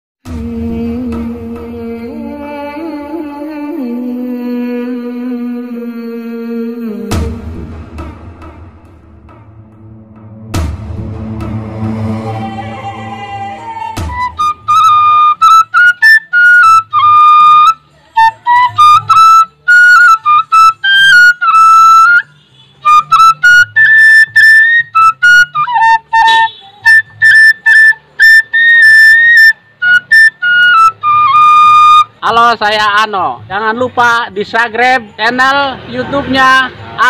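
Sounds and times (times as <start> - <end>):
electronic intro music: 7.1 - 15.5
bamboo flute melody: 10.6 - 32.6.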